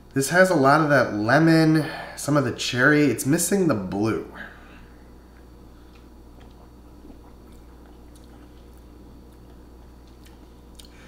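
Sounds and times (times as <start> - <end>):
low room hum: 0.0 - 11.0
lip smacks and tongue clicks: 5.4 - 11.0.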